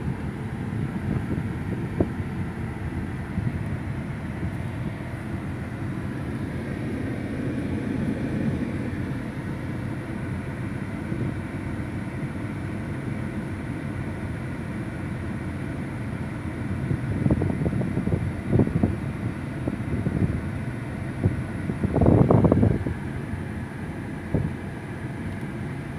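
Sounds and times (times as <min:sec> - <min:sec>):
car engine idling: 0:00.0 - 0:25.9
wind buffeting on microphone: 0:00.8 - 0:02.5, 0:16.9 - 0:19.0, 0:21.2 - 0:23.0.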